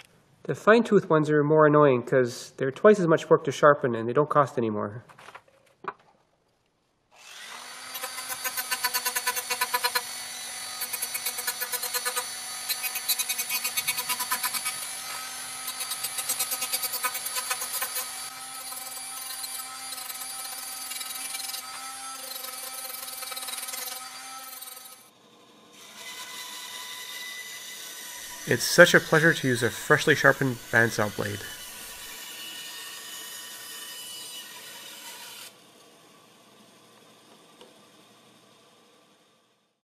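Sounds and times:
saw running free: 0:07.1 - 0:25.1, 0:27.4 - 0:35.6
bandsaw cutting wood: 0:07.1 - 0:35.6
rotary tool grinding metal teeth: 0:07.2 - 0:25.1, 0:27.8 - 0:35.5.

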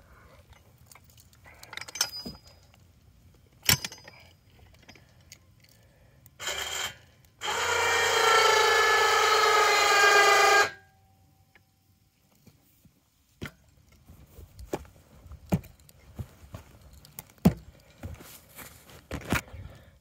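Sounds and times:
electric hoist motor whining: 0:06.4 - 0:10.8.

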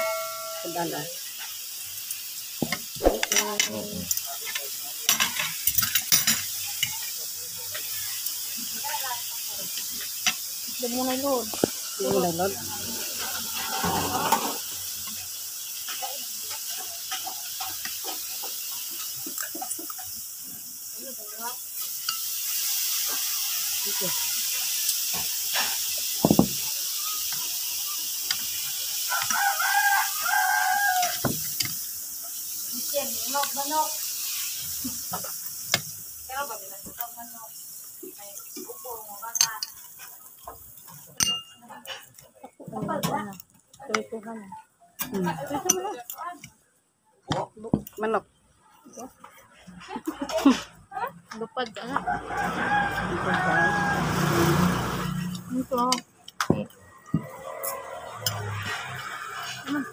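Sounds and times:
cutlery clinking and scraping on plate: 0:02.6 - 0:07.9, 0:13.2 - 0:14.7, 0:40.9 - 0:42.3
rooster crowing: 0:29.0 - 0:31.4, 0:52.0 - 0:55.2, 0:56.8 - 0:59.4.

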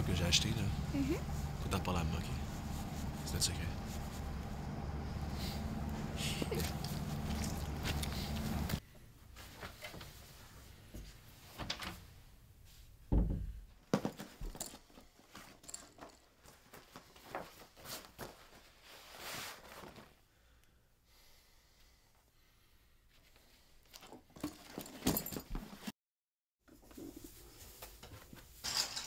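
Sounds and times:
clothing and bag rustling: 0:02.4 - 0:08.8, 0:14.0 - 0:20.2, 0:23.8 - 0:25.9.

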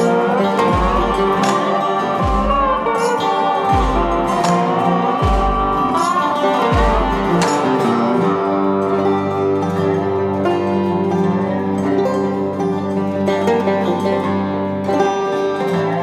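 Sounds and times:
deep beat: 0:00.0 - 0:08.8
plucked string music: 0:00.0 - 0:16.0.

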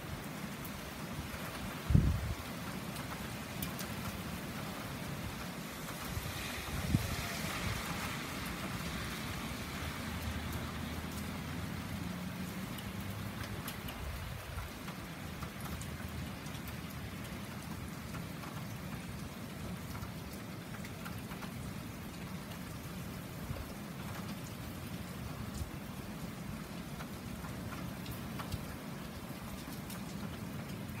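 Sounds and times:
heavy rain on street and roofs: 0:00.0 - 0:31.0
car tyres hissing on wet road: 0:04.7 - 0:13.6.

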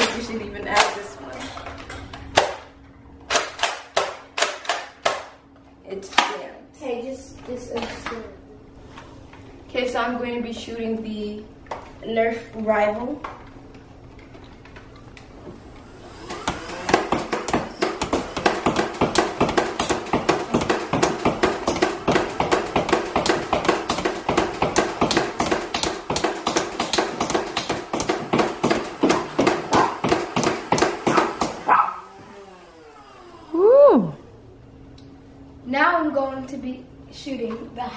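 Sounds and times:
motor whine: 0:15.5 - 0:17.2, 0:31.5 - 0:34.8.

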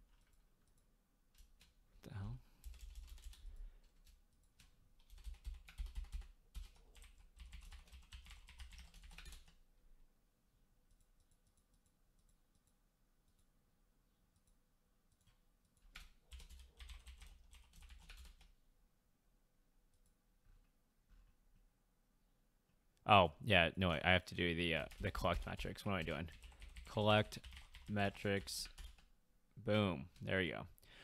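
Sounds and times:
typing on computer keyboard: 0:02.6 - 0:09.6, 0:14.4 - 0:18.5, 0:24.8 - 0:29.1.

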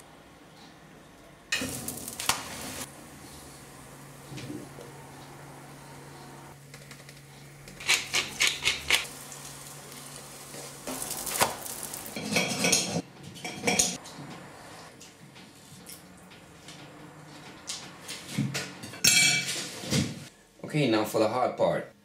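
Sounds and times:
cutlery scraping on a plate: 0:12.2 - 0:14.0.

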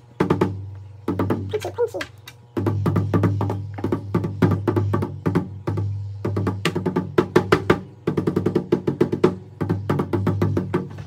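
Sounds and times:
low drum tone ringing: 0:02.4 - 0:11.0
hand tapping bass drum: 0:02.6 - 0:11.0.

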